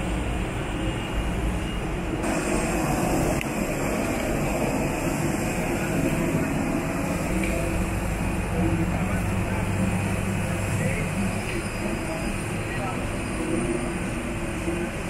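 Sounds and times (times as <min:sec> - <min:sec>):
jet engines humming: 0:00.0 - 0:15.0
airflow hiss: 0:02.2 - 0:15.0.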